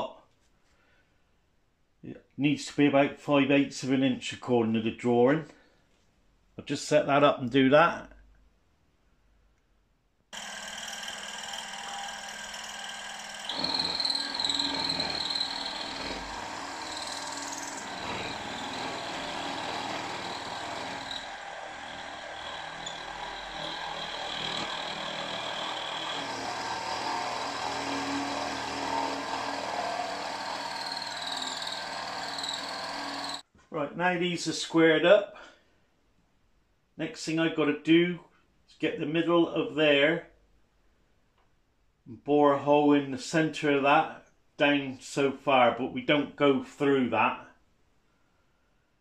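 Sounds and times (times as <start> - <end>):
end mill cutting metal: 10.4 - 33.4
milling machine motor whine: 10.4 - 33.4.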